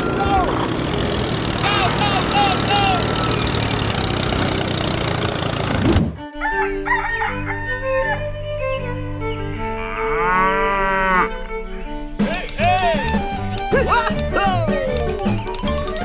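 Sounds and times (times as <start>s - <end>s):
birds chirping: 0.0s - 4.9s, 11.3s - 16.0s
engine-like toy noise: 0.0s - 6.0s, 12.2s - 16.0s
rooster crowing: 6.4s - 8.2s
gentle music: 6.6s - 16.0s.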